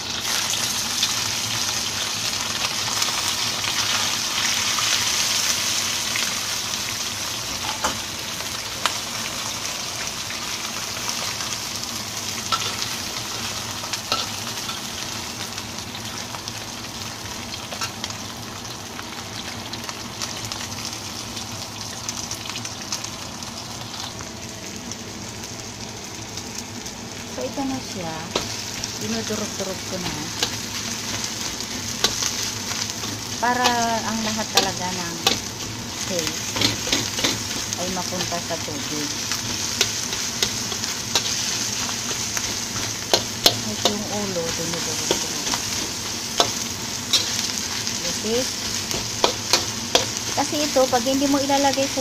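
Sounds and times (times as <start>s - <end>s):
fish sizzling in hot oil: 0.0s - 52.0s
metal spatula scraping wok: 29.8s - 50.6s.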